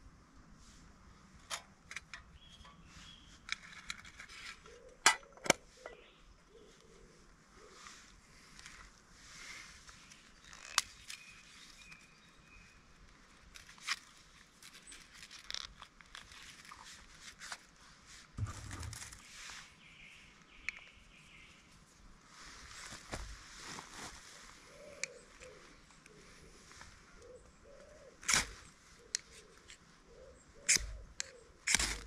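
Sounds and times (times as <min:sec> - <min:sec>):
soft handling knocks: 0:18.4 - 0:19.2.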